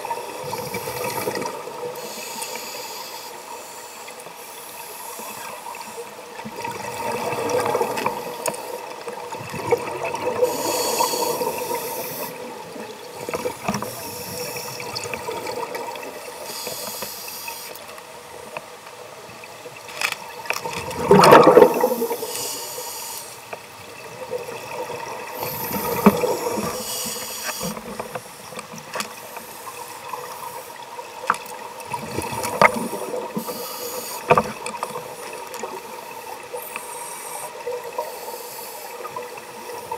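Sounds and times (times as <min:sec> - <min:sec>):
exhaled bubbles gurgling: 0:00.0 - 0:02.1, 0:06.2 - 0:16.4, 0:20.6 - 0:22.7, 0:23.8 - 0:30.3, 0:31.0 - 0:36.8
regulator hissing inhalations: 0:02.0 - 0:06.0, 0:10.4 - 0:12.5, 0:13.1 - 0:15.1, 0:16.4 - 0:17.8, 0:22.0 - 0:23.5, 0:25.4 - 0:27.9, 0:32.8 - 0:34.4, 0:36.6 - 0:39.1.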